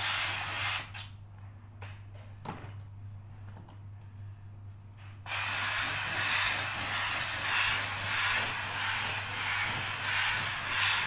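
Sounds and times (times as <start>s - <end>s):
steam cleaner hissing: 0.0s - 1.0s, 5.3s - 11.0s.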